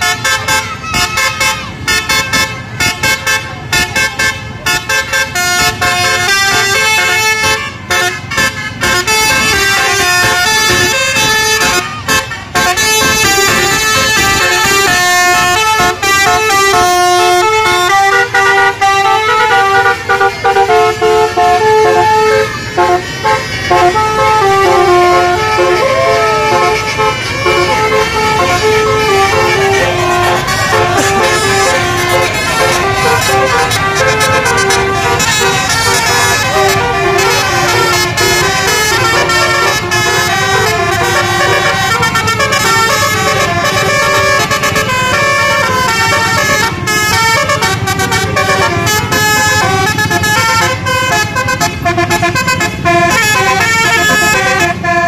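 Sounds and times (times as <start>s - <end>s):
musical bus horn playing a tune: 0.0s - 55.0s.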